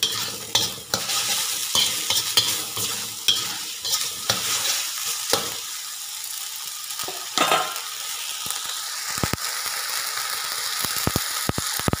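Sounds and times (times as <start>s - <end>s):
spatula scraping wok: 0.0s - 5.8s
food sizzling in a wok: 0.0s - 12.0s.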